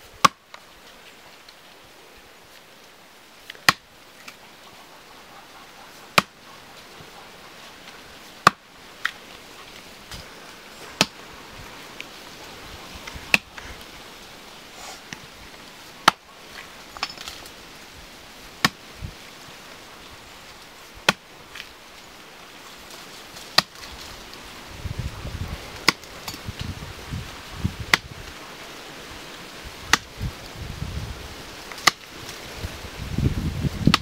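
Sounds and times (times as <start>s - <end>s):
blade chopping into tree trunk: 3.6s - 3.8s, 6.2s - 6.4s, 8.4s - 8.6s, 11.0s - 11.2s, 13.3s - 13.5s, 16.0s - 16.2s, 18.6s - 18.8s, 23.5s - 23.9s, 25.8s - 26.1s, 31.8s - 32.1s.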